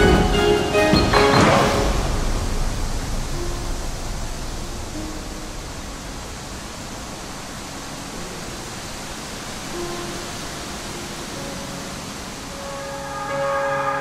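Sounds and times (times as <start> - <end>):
hiss-like wash of noise: 0.0 - 14.0
faint held notes: 9.7 - 14.0.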